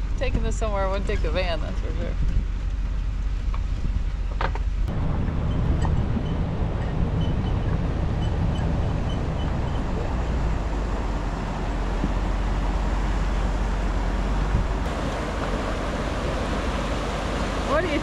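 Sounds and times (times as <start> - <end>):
truck rolling on gravel: 0.0 - 18.0
creek water rushing: 4.9 - 18.0.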